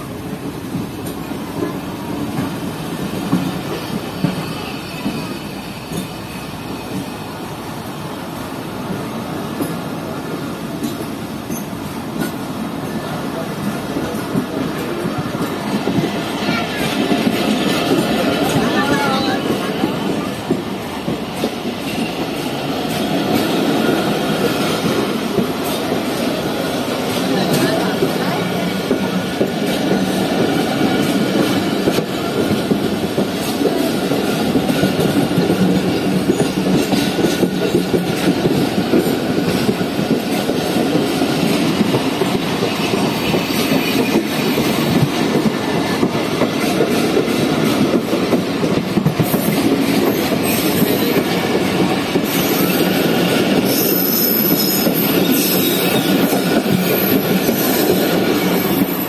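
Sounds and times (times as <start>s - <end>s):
train wheels rumbling on rails: 0.0s - 59.0s
wheel squeals: 53.6s - 59.0s.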